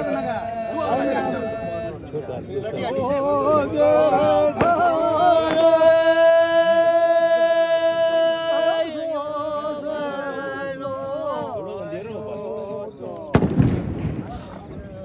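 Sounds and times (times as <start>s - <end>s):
person singing ornamented melody: 3.0s - 13.3s.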